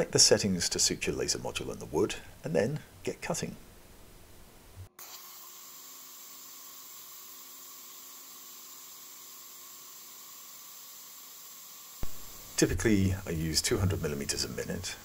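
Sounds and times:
faint fan hum: 0.0s - 4.9s, 12.0s - 15.0s
air assist hiss: 7.9s - 15.0s.

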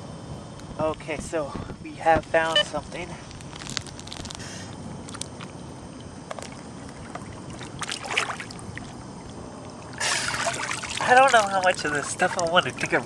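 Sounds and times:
water sloshing and trickling: 5.2s - 13.0s
small splashes and knocks: 6.3s - 9.3s, 10.2s - 12.6s.

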